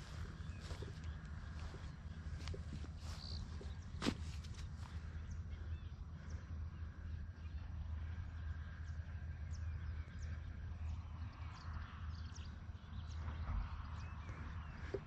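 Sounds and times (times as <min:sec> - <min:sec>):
footsteps through grass: 0:00.0 - 0:05.2
high falling bird calls: 0:00.0 - 0:06.4
steady low rumble: 0:00.0 - 0:15.0.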